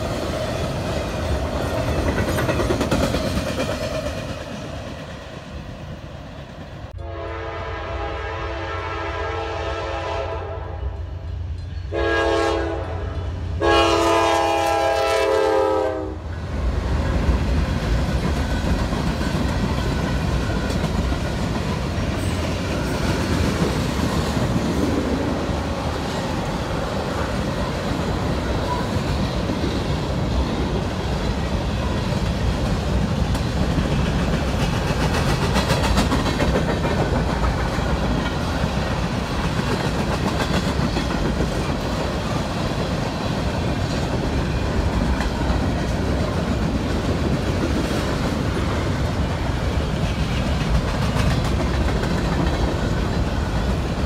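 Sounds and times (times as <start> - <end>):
locomotive horn blasts: 7.0 - 11.0, 11.9 - 16.2.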